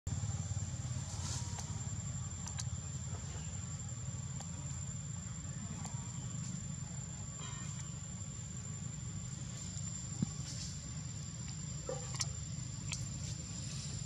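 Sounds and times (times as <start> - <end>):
faint clicks: 2.4 - 2.8.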